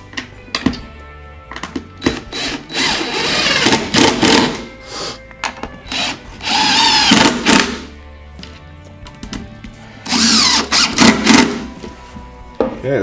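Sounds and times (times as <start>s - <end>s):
impact driver driving screws: 2.0s - 4.7s, 5.9s - 7.9s, 10.1s - 11.7s.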